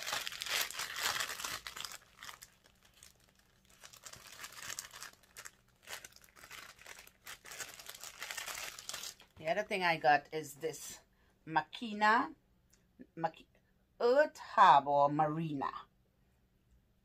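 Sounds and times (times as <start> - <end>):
packaging crinkling and rustling: 0.0 - 9.4.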